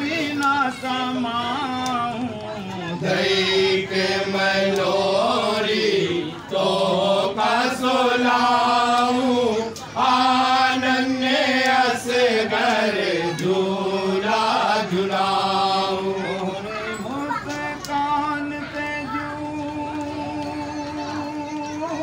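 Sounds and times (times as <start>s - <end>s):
men singing devotional song: 0.0s - 22.0s.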